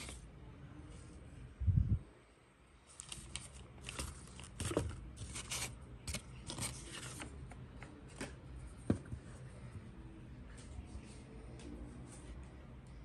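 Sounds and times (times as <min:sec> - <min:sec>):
tissue paper crinkling: 0:02.9 - 0:07.3.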